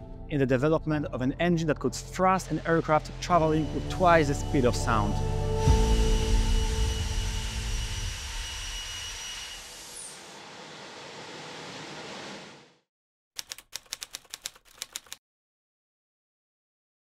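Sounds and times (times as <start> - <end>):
high whine: 2.8 - 10.6
keyboard typing clicks: 13.4 - 15.2.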